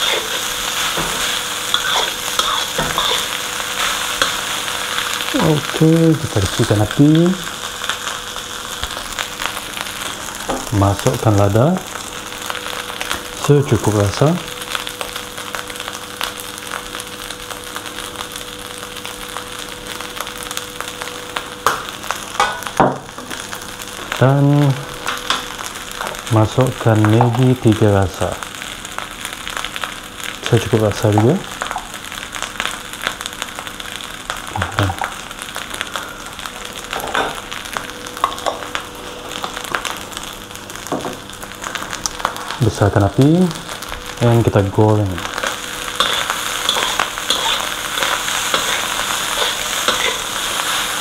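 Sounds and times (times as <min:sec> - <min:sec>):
spatula scraping and knocking wok: 0:00.0 - 0:04.7, 0:45.3 - 0:51.0
rice sizzling in a wok: 0:00.0 - 0:51.0.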